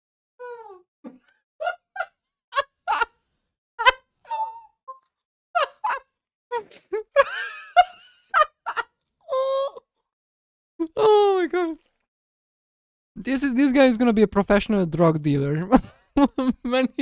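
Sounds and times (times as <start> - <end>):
woman laughing: 1.1 - 3.1, 3.8 - 4.6, 5.6 - 9.8, 15.8 - 16.7.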